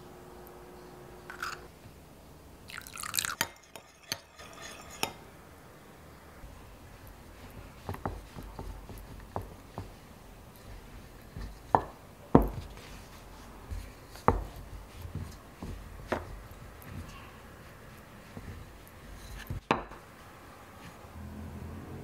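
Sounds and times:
spoon clinking against glass: 2.7s - 5.2s
metal spoon stirring in glass bowl: 2.7s - 5.3s
rolling pin knocking on wooden board: 7.6s - 10.0s, 11.3s - 12.7s, 14.3s - 16.4s.

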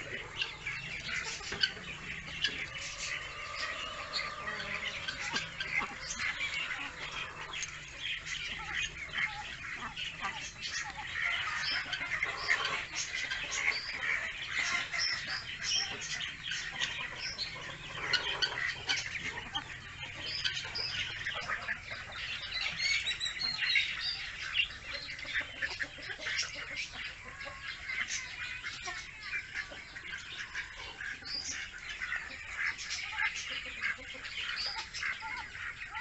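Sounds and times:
ducklings peeping: 0.0s - 36.0s.

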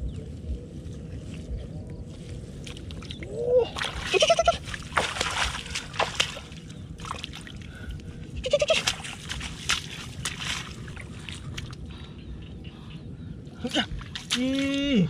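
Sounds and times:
splashing in muddy water: 2.6s - 11.9s, 13.9s - 15.0s.

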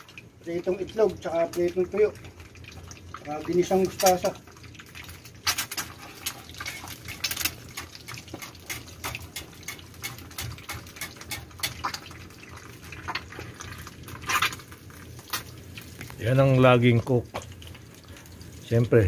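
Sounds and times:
food sizzling in hot oil: 0.0s - 19.0s
metal spatula scraping a pan: 5.5s - 7.6s, 8.4s - 12.0s
crackling pops: 12.9s - 16.2s.

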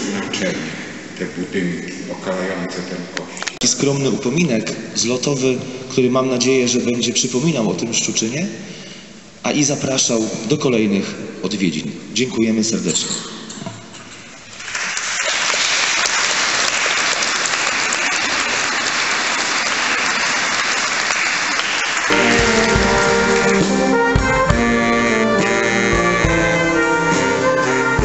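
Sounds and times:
crowd applauding: 14.5s - 25.1s
brass band playing: 22.0s - 28.0s.

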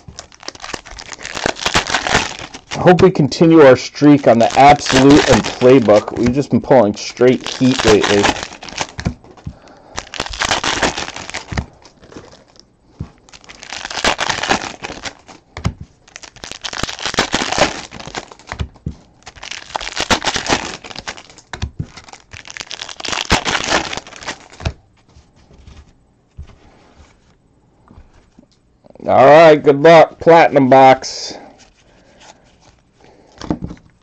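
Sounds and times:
card wrappers tearing and crinkling: 0.0s - 24.8s.

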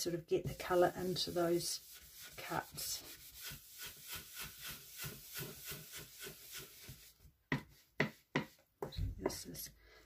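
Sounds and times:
foam brush scrubbing paper: 0.0s - 8.6s
brush tapping on ink pad: 7.5s - 8.6s.

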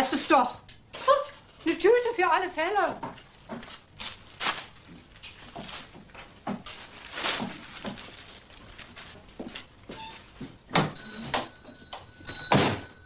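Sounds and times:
plastic bag crinkling: 2.6s - 10.4s.

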